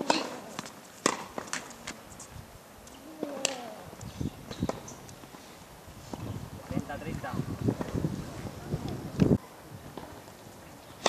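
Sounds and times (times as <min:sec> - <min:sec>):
tennis balls knocking: 0:00.0 - 0:01.6.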